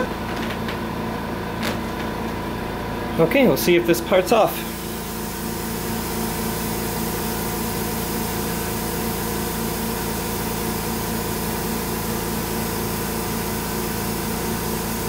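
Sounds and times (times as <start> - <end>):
desktop mill humming: 0.0 - 8.8.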